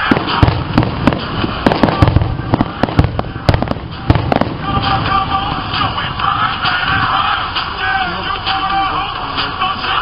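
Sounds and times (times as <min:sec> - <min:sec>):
fireworks cracks and booms: 0:00.0 - 0:07.1.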